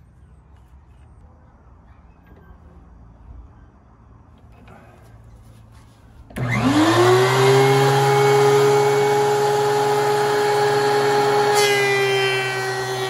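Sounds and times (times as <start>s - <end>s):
thickness planer whining: 6.2s - 13.0s.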